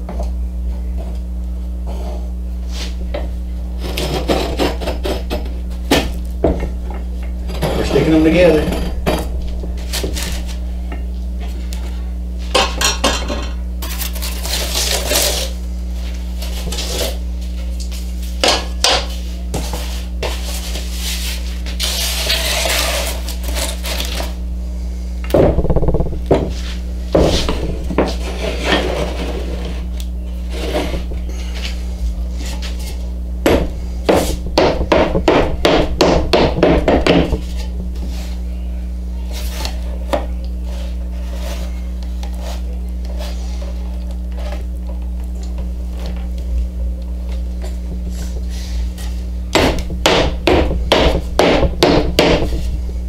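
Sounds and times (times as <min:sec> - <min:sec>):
steady low hum: 0:00.0 - 0:53.0
wood sliding and scraping: 0:25.5 - 0:33.1.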